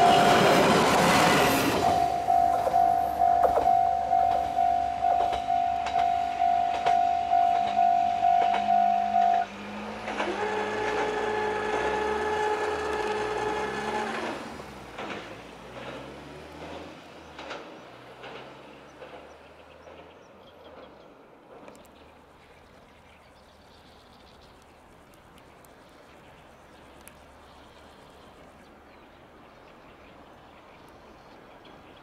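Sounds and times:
diesel railcar engine: 0.0s - 32.0s
level crossing bell dinging: 1.8s - 9.4s.

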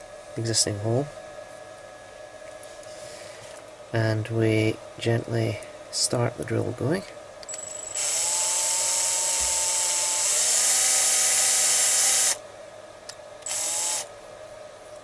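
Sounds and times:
cordless drill cutting wood: 7.6s - 12.4s, 13.4s - 14.1s.

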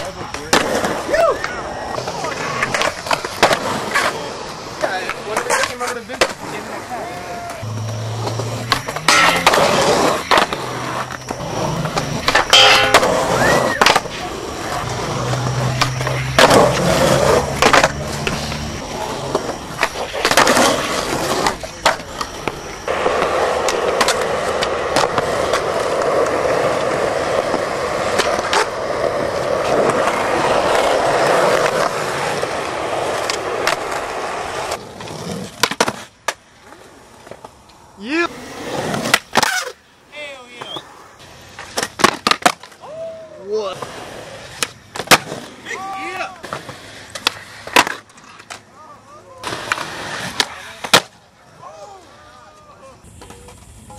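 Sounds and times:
skateboard wheels rolling: 0.0s - 53.9s
skateboard pops and landings: 0.3s - 4.2s, 7.4s - 18.6s, 19.2s - 28.8s, 29.4s - 37.6s, 38.5s - 39.8s, 41.6s - 42.8s, 44.5s - 45.6s, 46.4s - 48.7s, 49.4s - 51.2s
skateboard grinding metal rail: 1.7s - 39.8s.

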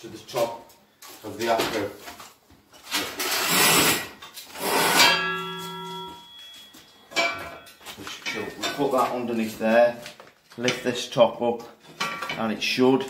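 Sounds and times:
metal scrape: 3.0s - 6.4s
metal props clanking: 4.1s - 9.8s
ringing metal knock: 5.0s - 8.8s.

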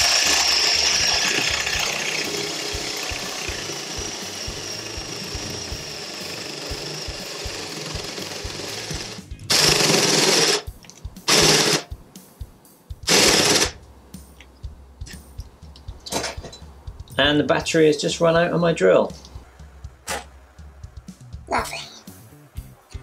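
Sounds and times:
cordless drill boring into wood: 0.0s - 10.6s, 11.3s - 11.8s, 13.1s - 13.7s.

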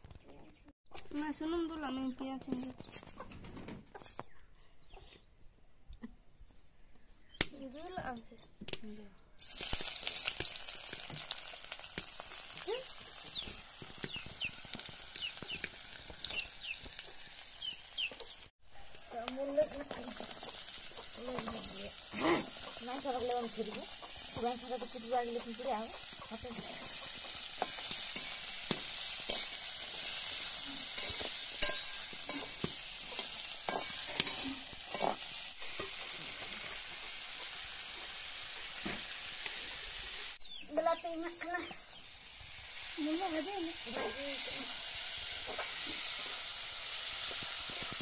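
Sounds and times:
onions sizzling in hot oil: 9.4s - 48.0s
metal spatula scraping pan: 26.0s - 36.1s.

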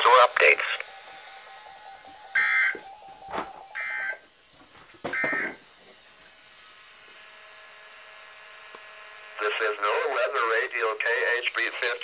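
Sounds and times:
buzzing data bursts: 0.0s - 2.7s, 3.7s - 4.2s.

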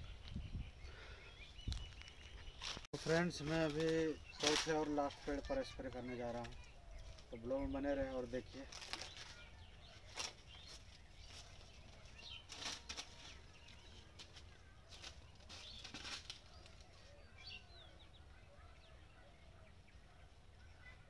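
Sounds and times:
footsteps crunching through dry leaves: 1.6s - 17.3s.

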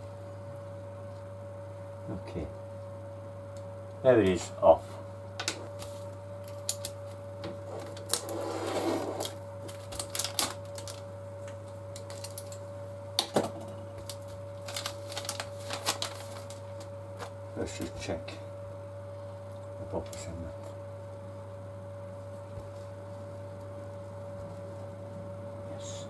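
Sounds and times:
steady electrical hum: 0.0s - 26.0s
plastic bag crinkling: 5.7s - 7.1s, 7.8s - 8.4s, 9.2s - 11.1s, 11.9s - 12.6s, 14.0s - 17.4s.

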